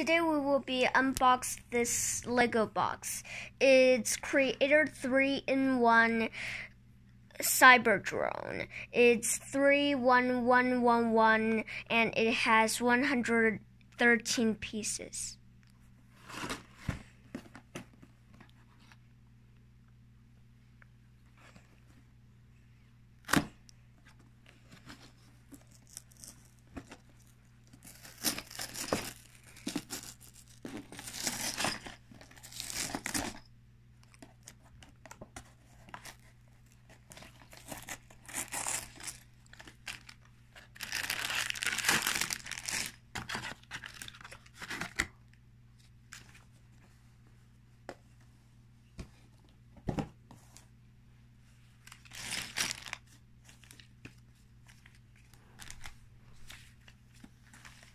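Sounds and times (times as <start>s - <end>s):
cardboard box tearing and crinkling: 27.8s - 33.4s, 37.2s - 40.1s, 40.8s - 45.0s.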